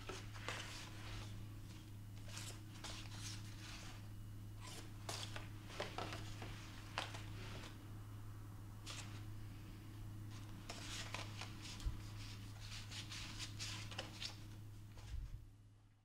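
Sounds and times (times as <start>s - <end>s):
photo prints rustling and scraping: 0.0s - 7.8s, 10.3s - 15.2s
steady low hum: 0.0s - 16.0s.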